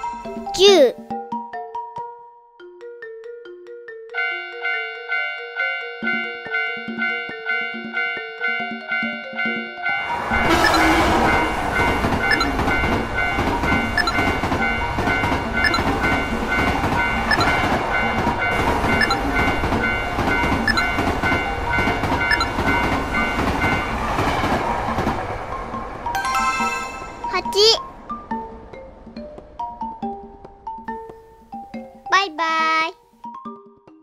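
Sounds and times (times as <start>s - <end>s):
level crossing warning bell: 4.1s - 28.1s
train wheels clickety-clack: 10.4s - 25.4s.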